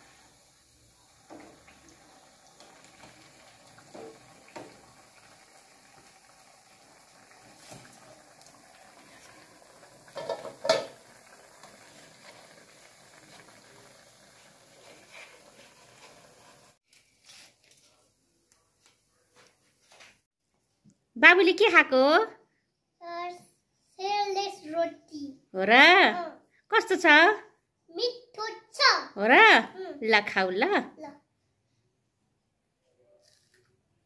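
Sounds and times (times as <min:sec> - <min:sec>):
dough sizzling in hot oil: 0:00.0 - 0:16.8.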